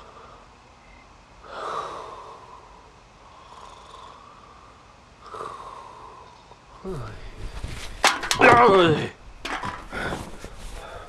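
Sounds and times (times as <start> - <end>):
man breathing heavily: 1.4 - 7.6, 9.6 - 11.0.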